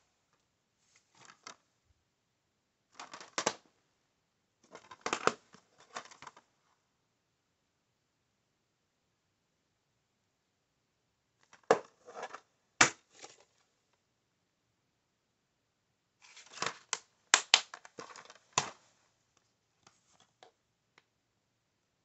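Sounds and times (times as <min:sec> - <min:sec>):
plastic case rattling: 0:04.7 - 0:06.4.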